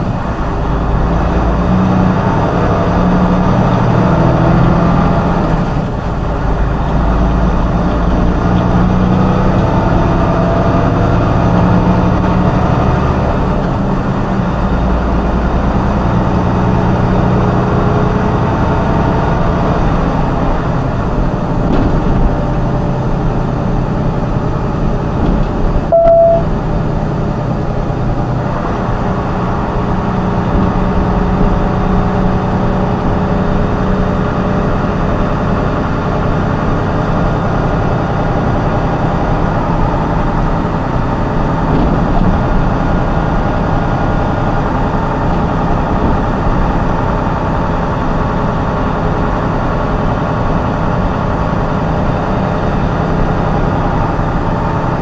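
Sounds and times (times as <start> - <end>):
vehicle engine and road noise: 0.0 - 55.0
short beep: 25.9 - 26.5.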